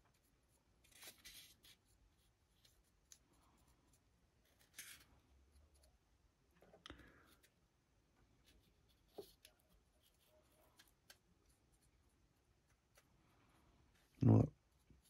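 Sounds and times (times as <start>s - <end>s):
paintbrush strokes: 7.0s - 15.0s.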